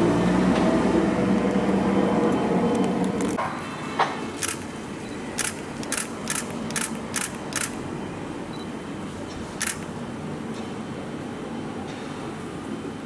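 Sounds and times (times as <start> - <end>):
outdoor background noise: 0.0 - 13.0
sharp clicks: 4.4 - 4.7, 5.4 - 7.8.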